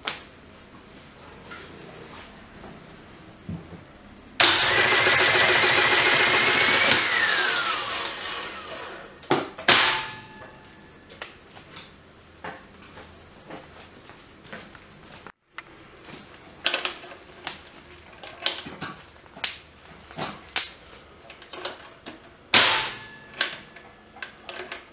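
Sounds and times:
sharp mechanical clacks: 4.4 - 8.6
electric motor running and winding down: 4.4 - 9.2.

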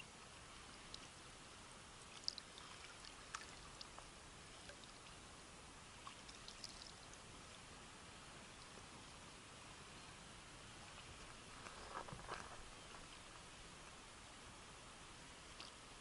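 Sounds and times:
light splashes and drips: 0.0 - 7.8, 8.4 - 9.2, 15.4 - 16.0
small waves lapping against boat: 2.0 - 7.7.

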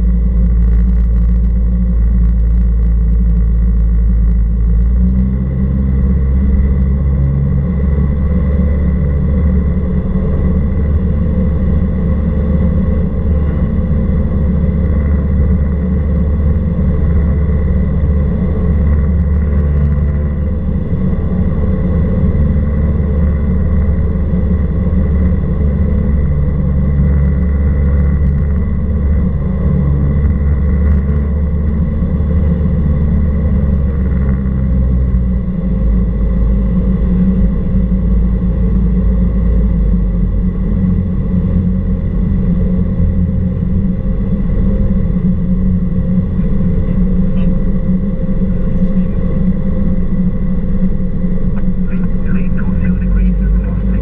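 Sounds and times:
airplane engine and propeller droning: 0.0 - 54.0.

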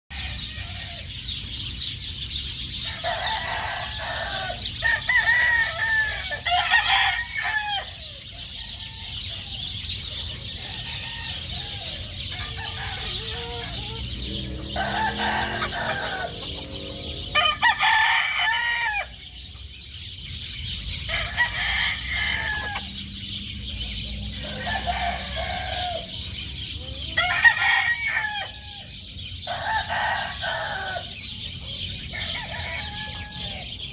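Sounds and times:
chickens clucking: 0.1 - 33.9
rooster crowing: 2.9 - 9.7, 10.5 - 19.2, 21.1 - 23.0, 24.4 - 26.2, 27.1 - 28.9, 29.5 - 31.1, 32.1 - 33.8.

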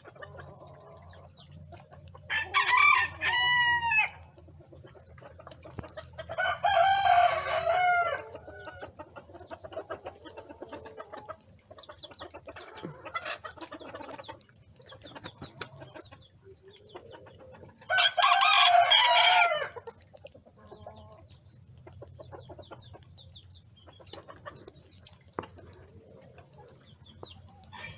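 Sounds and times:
hens clucking softly: 0.0 - 27.9
rooster crowing: 2.3 - 4.2, 6.4 - 8.8, 17.9 - 19.8.

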